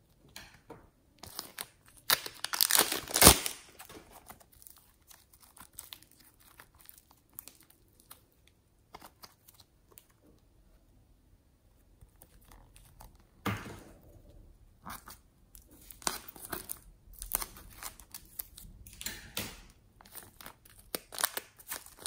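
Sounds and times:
plastic bag crinkling: 0:01.2 - 0:10.1, 0:14.9 - 0:18.8, 0:20.0 - 0:22.0.

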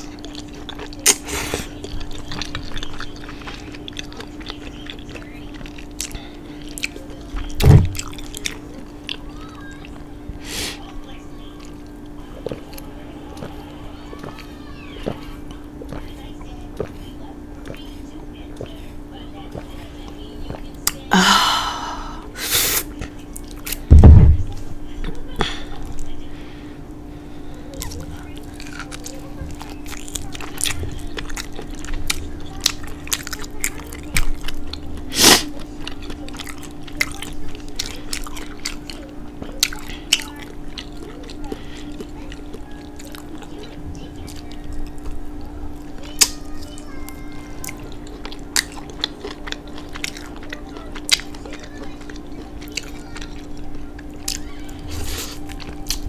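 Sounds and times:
wet chewing clicks and smacks: 0:00.0 - 0:10.1, 0:11.5 - 0:18.8, 0:19.4 - 0:21.1, 0:27.7 - 0:54.5, 0:55.3 - 0:56.0
faint steady hum: 0:00.0 - 0:56.0
person gasping ahh: 0:21.1 - 0:22.7
loud dull thump: 0:23.9 - 0:24.5.

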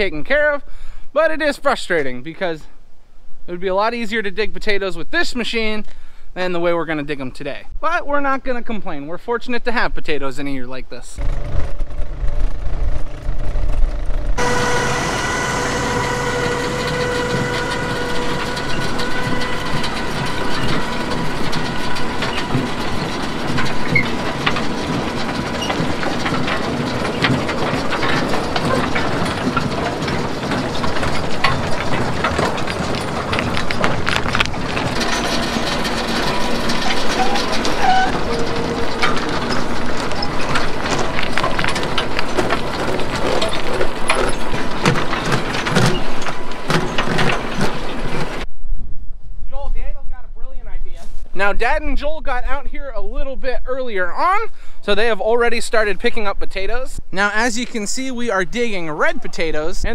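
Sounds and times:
clatter of soil and rocks: 0:11.1 - 0:48.5
low rumble: 0:11.1 - 0:50.9
chain conveyor rattle: 0:11.2 - 0:48.5
engine drone: 0:11.2 - 0:48.5.

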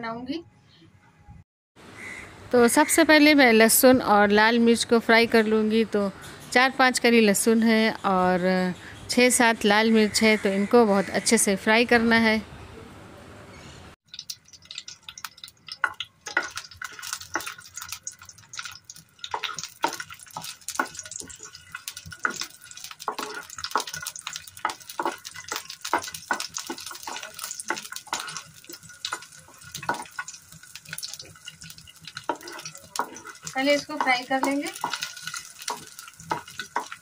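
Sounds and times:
garlic and chillies frying in oil: 0:02.0 - 0:12.4, 0:14.1 - 0:37.0
spatula scraping pan: 0:15.8 - 0:37.0.

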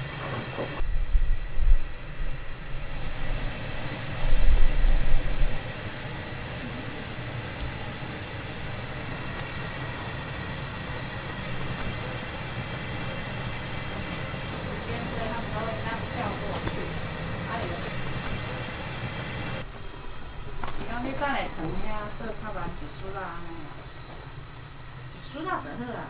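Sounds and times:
liquid boiling with bubbling hiss: 0:00.0 - 0:26.0.

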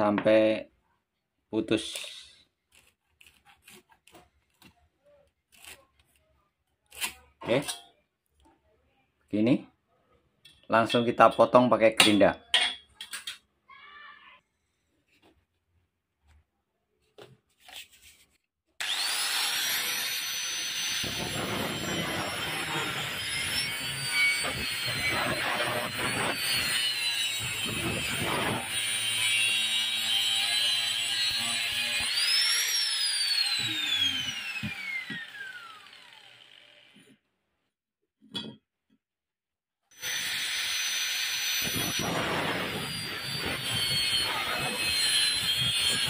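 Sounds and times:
grinder disc spinning down: 0:18.8 - 0:37.0
angle grinder cutting steel: 0:18.8 - 0:37.2, 0:39.9 - 0:46.0.

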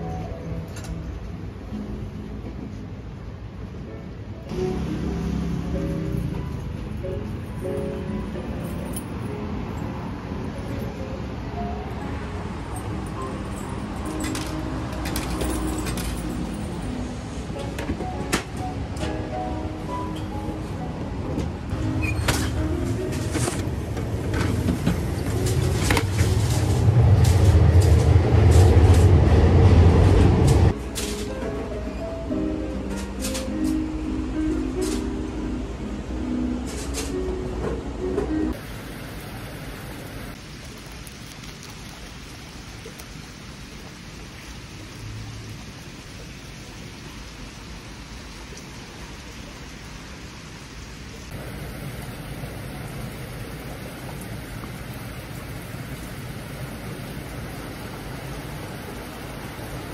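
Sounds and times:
train rumbling past: 0:00.0 - 0:40.2
rain falling: 0:10.4 - 0:20.9, 0:21.6 - 0:31.8, 0:38.4 - 0:59.9.

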